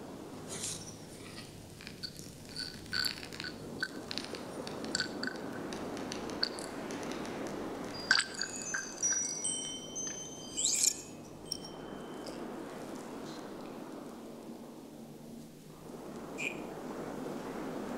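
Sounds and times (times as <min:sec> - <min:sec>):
glassy clinks: 0:02.0 - 0:04.1, 0:04.7 - 0:05.7, 0:06.4 - 0:12.5
high chime-like tones ringing: 0:07.8 - 0:12.7.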